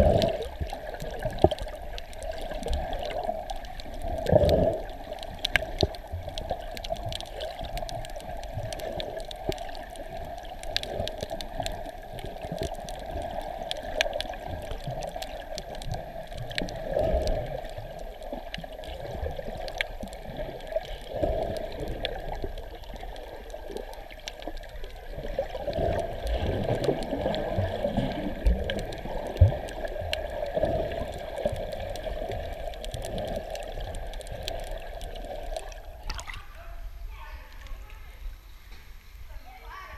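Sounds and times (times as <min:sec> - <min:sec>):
small underwater clicks: 0:00.0 - 0:36.6, 0:37.4 - 0:38.0
rushing water: 0:00.0 - 0:39.9.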